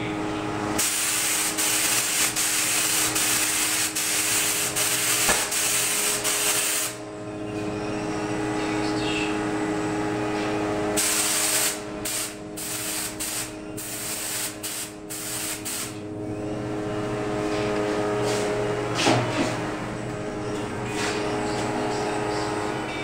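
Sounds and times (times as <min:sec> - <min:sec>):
steady mechanical hum: 0:00.0 - 0:23.0
spray gun hissing: 0:00.8 - 0:07.0, 0:11.0 - 0:16.0.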